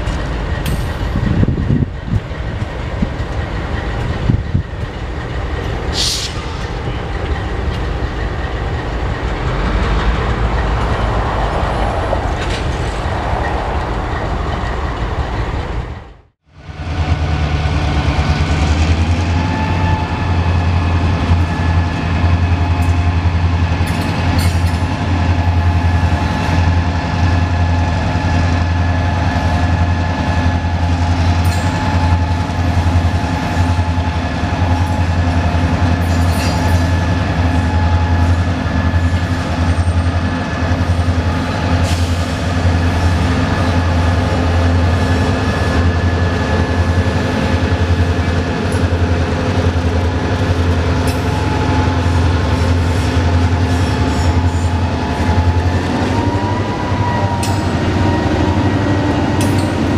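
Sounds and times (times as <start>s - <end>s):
diesel locomotives rumbling: 0.0s - 59.9s.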